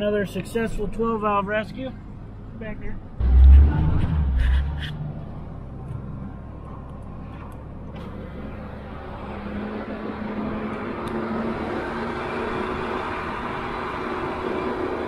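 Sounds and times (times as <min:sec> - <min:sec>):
tyre and road noise: 0:01.7 - 0:15.0
truck engine drone: 0:03.0 - 0:15.0.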